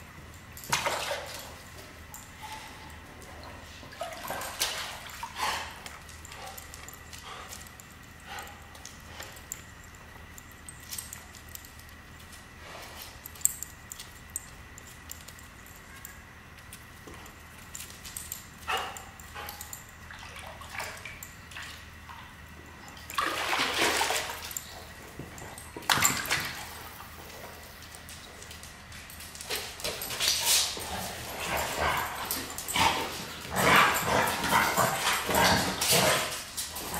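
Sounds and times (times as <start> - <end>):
dog splashing in pool water: 20.1 - 22.3, 23.0 - 24.6.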